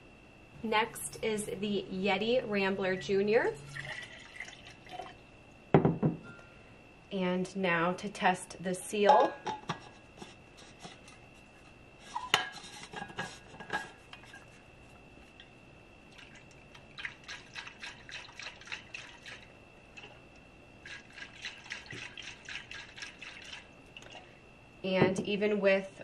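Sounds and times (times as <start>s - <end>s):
knocks on bottle: 5.8s - 6.2s.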